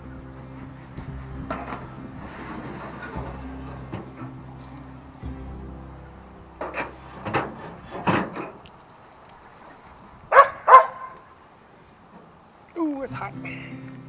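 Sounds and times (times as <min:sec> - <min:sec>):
dog barking: 0:10.3 - 0:11.2.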